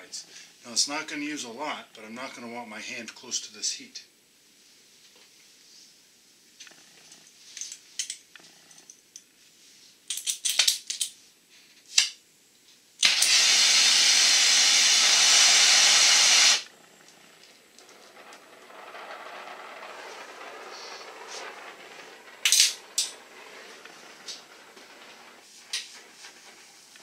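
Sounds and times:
loud gas hiss from torch: 0:13.0 - 0:16.7
torch clicks and rattles: 0:14.5 - 0:27.0
faint steady rush: 0:16.6 - 0:27.0.

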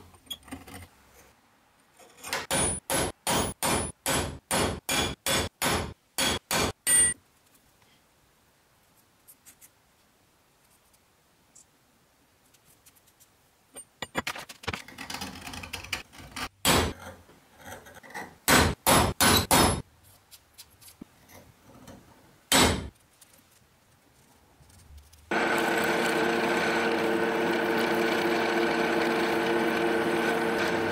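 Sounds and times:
sharp metal knocks: 0:02.4 - 0:07.2, 0:18.5 - 0:19.8, 0:22.5 - 0:22.9.

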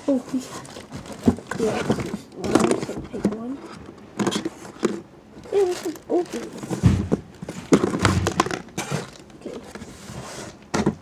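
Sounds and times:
plastic packaging crinkling: 0:00.1 - 0:03.2, 0:04.3 - 0:09.9
knocks against cardboard box: 0:06.8 - 0:08.5.

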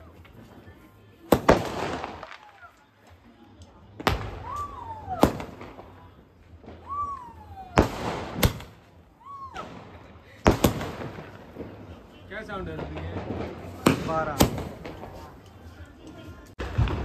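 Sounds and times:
firework bangs: 0:00.0 - 0:17.0
firework whistles: 0:06.7 - 0:12.0.

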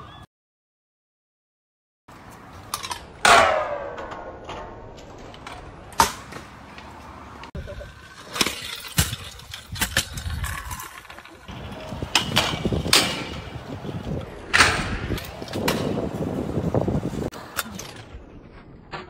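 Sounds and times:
scooter wheels rolling: 0:03.9 - 0:18.9
scooter deck grinding on rails: 0:07.5 - 0:14.3
scooter landing clacks: 0:08.2 - 0:16.3.

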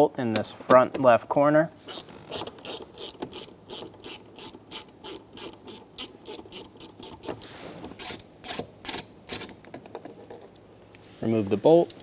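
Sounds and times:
hand ratchet clicking: 0:01.9 - 0:07.3.

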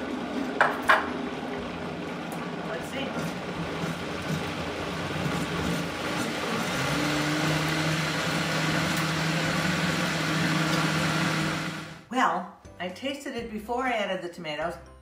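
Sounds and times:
blender motor running: 0:01.7 - 0:12.1.

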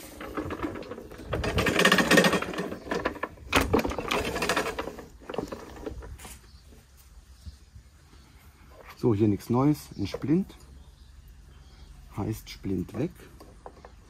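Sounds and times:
rapid mechanical rattling clicks: 0:00.1 - 0:06.0.

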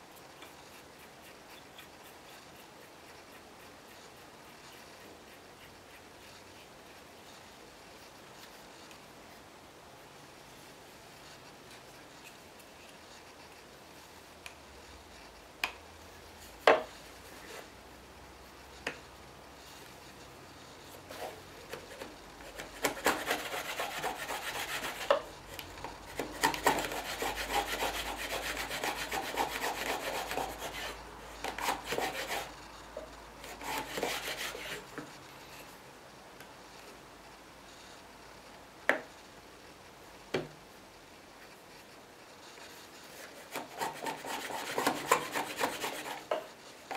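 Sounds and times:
hand plane shaving wood: 0:22.5 - 0:25.2, 0:26.2 - 0:32.6, 0:33.4 - 0:34.9, 0:43.3 - 0:46.4.

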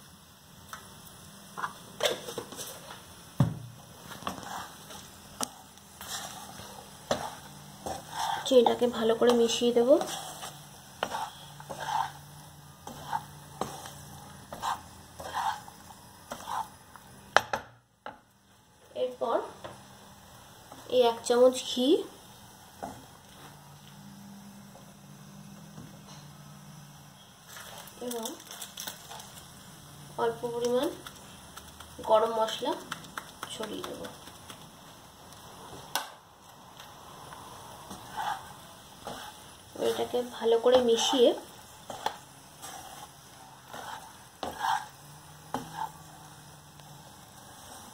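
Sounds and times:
spatula scraping rice in a pan: 0:04.0 - 0:17.2, 0:27.5 - 0:29.4, 0:37.8 - 0:47.9.

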